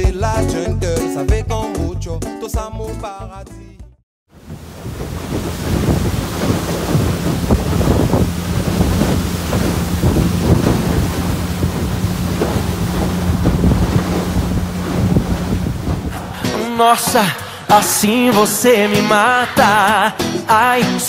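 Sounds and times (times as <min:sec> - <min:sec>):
water splashing against hull: 0:04.3 - 0:18.5
outboard motor droning: 0:04.4 - 0:16.6
wind buffeting microphone: 0:04.4 - 0:17.1.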